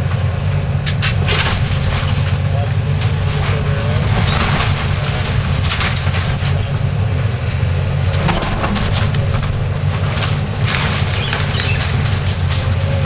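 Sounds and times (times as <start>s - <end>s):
excavator diesel engine: 0.0s - 13.0s
timber cracking and splintering: 8.0s - 13.0s.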